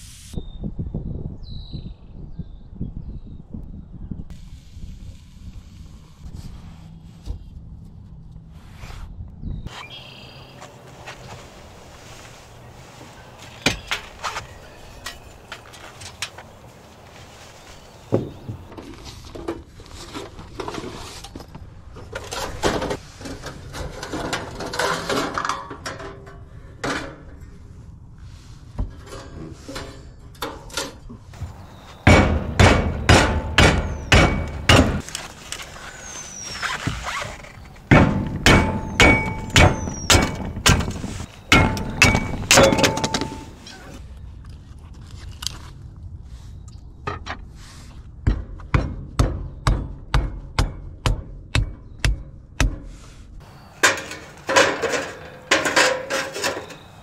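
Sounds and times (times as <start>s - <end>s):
hard hammering blows: 31.4s - 35.1s, 37.8s - 43.6s.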